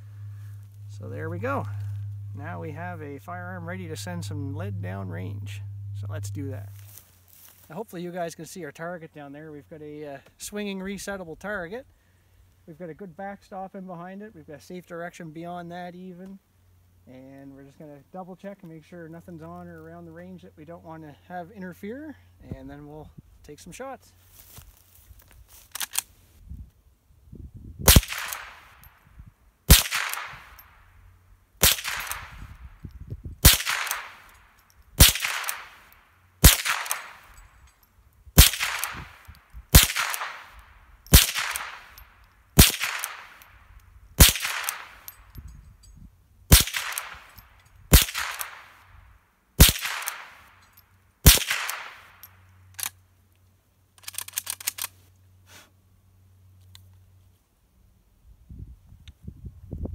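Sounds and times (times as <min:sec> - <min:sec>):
rifle shots: 0:27.9 - 0:28.8, 0:29.7 - 0:30.6, 0:31.6 - 0:32.5, 0:33.4 - 0:34.3, 0:35.0 - 0:37.4, 0:38.4 - 0:42.0, 0:42.6 - 0:43.5, 0:44.2 - 0:45.2, 0:46.5 - 0:48.8, 0:49.6 - 0:50.5, 0:51.2 - 0:52.2
rifle action clicking: 0:33.4 - 0:37.4, 0:38.4 - 0:43.5, 0:44.2 - 0:45.2, 0:46.5 - 0:47.4, 0:48.0 - 0:48.7, 0:49.6 - 0:53.0, 0:54.0 - 0:55.0.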